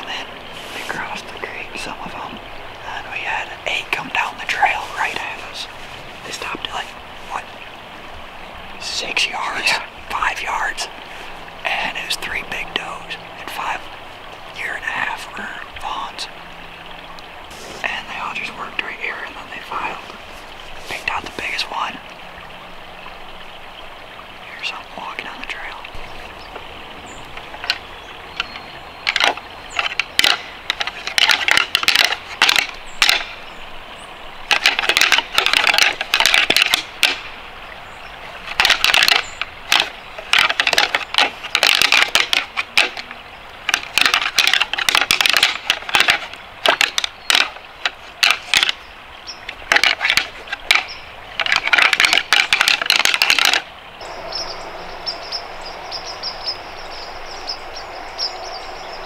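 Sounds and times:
footsteps on dry leaves: 0:17.5 - 0:17.8.

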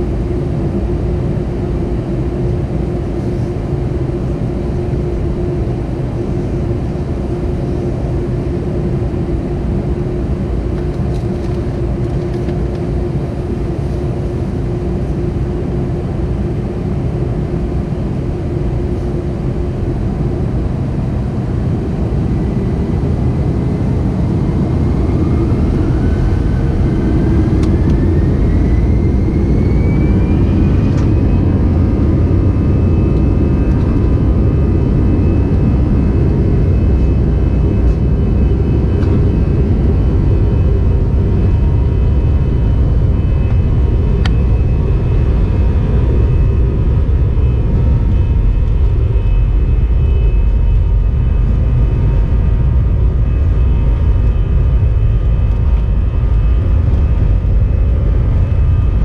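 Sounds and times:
jet engines humming: 0:00.0 - 0:59.0.

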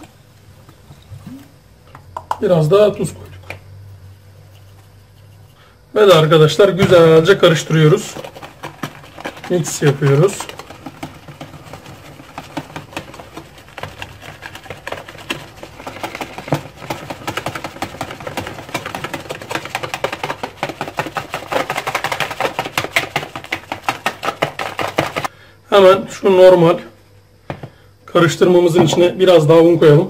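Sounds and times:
whisk clicking against plastic bowl: 0:07.2 - 0:25.3.

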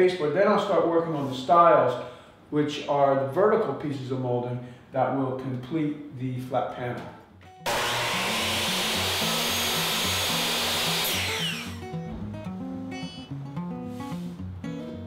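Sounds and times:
acoustic guitar music: 0:07.3 - 0:07.7, 0:11.6 - 0:15.0
power saw cutting wood: 0:07.7 - 0:11.9.

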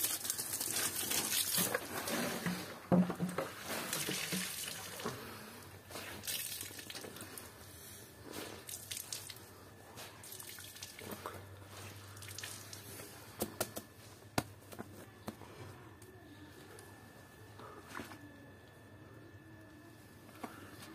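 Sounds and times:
water dripping and splashing: 0:08.6 - 0:09.4, 0:11.9 - 0:12.9.

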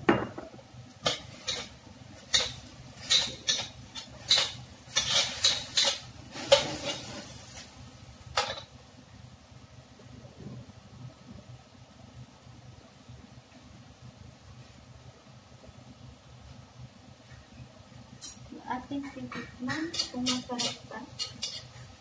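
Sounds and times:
metal spatula scraping a wok: 0:01.0 - 0:07.8, 0:19.7 - 0:22.0.

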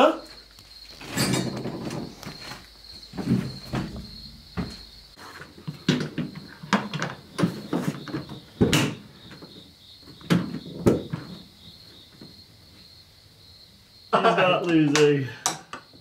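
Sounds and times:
knocks and clatters of parts: 0:00.9 - 0:11.4.

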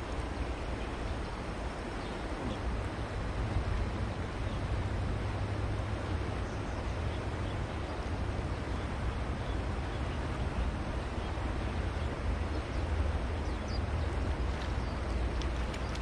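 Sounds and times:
shallow river flowing: 0:00.0 - 0:16.0.

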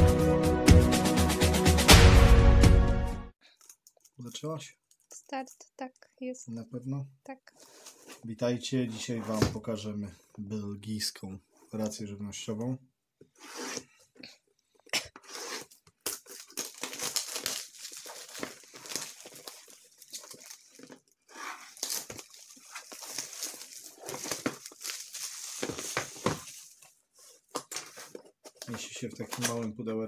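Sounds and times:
plastic wrap rustling and tearing: 0:15.2 - 0:29.8.

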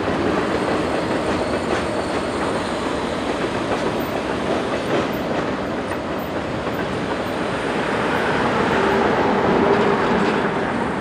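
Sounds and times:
train wheels rumbling on rails: 0:00.0 - 0:11.0.

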